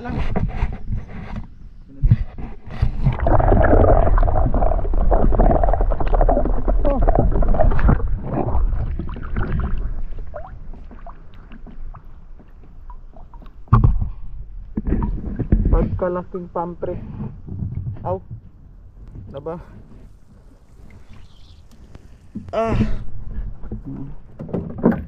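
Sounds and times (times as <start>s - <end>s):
water sloshing and gurgling: 0.2s - 25.0s
low rumble: 3.1s - 10.7s.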